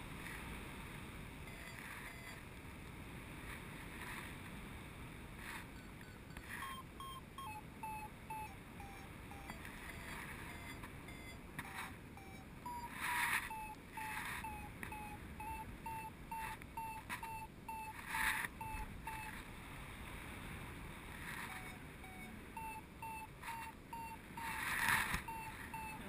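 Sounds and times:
variometer beeping: 0:01.4 - 0:02.5, 0:05.4 - 0:19.5, 0:21.2 - 0:26.0.

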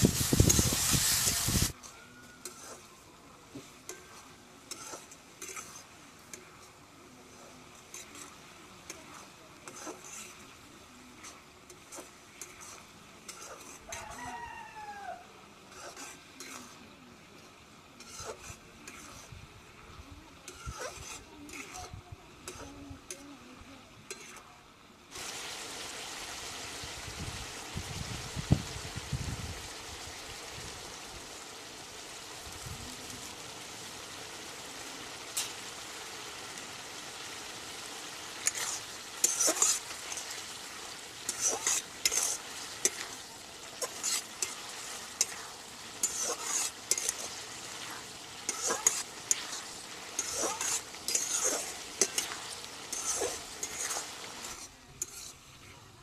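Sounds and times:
utensil scraping a pan: 0:00.0 - 0:03.0, 0:03.6 - 0:14.5, 0:15.6 - 0:19.4, 0:20.4 - 0:23.2, 0:24.1 - 0:24.5, 0:38.3 - 0:55.8
food sizzling in a pan: 0:00.0 - 0:56.0.

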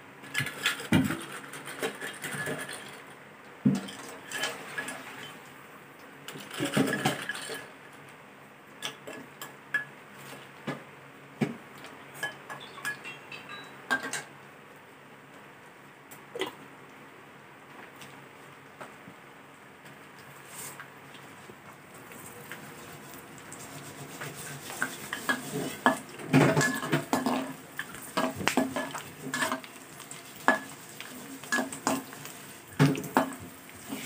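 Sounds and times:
metal utensils scraping a bowl: 0:00.4 - 0:03.0, 0:06.4 - 0:07.7, 0:23.7 - 0:29.7, 0:30.4 - 0:32.2
pork skin crackling in oil: 0:19.8 - 0:34.0.

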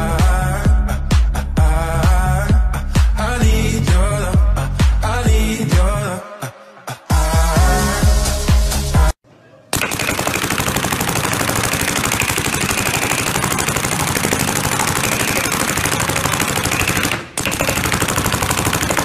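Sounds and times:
music: 0:00.0 - 0:09.2
paintball marker firing rapidly: 0:09.8 - 0:19.0.

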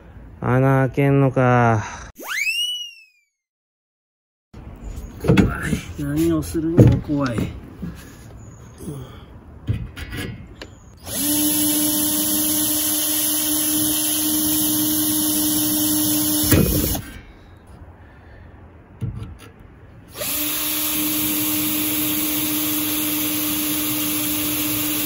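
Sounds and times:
cordless drill boring metal: 0:11.0 - 0:17.1, 0:20.1 - 0:25.0.

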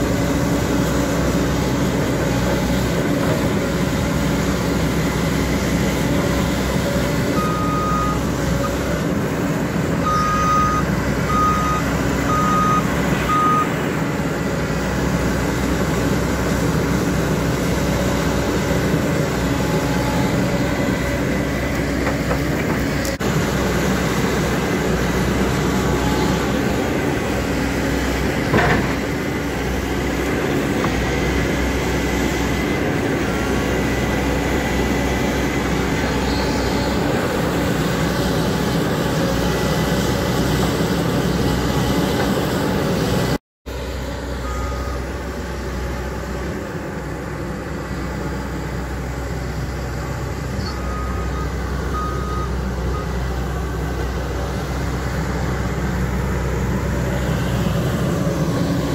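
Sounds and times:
excavator engine running: 0:00.0 - 0:58.9.

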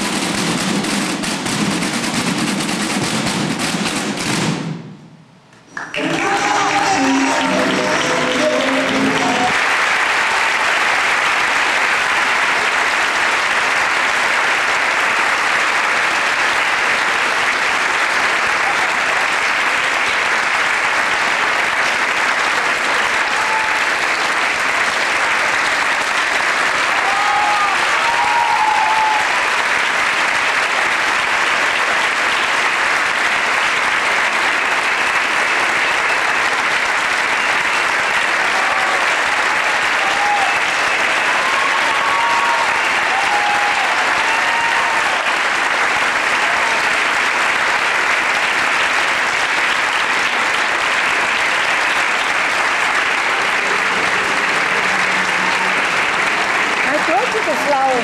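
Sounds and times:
audience applauding: 0:00.0 - 0:01.5, 0:05.7 - 0:58.0
audience cheering: 0:05.7 - 0:58.0.

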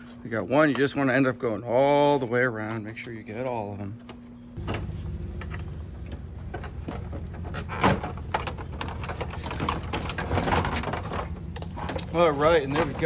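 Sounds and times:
low steady hum: 0:00.0 - 0:13.0
plastic creaking and rattling: 0:05.4 - 0:13.0.

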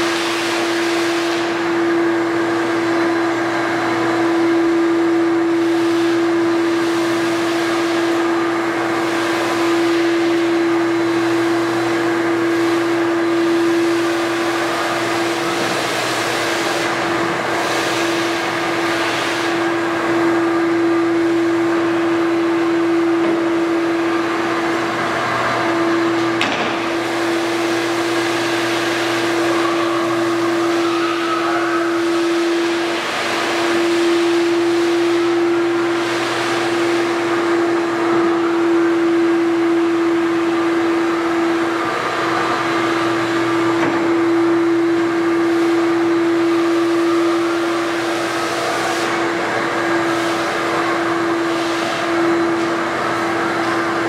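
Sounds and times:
squeegee sucking water off floor: 0:00.0 - 0:54.0
wet vacuum motor hum: 0:00.0 - 0:54.0.

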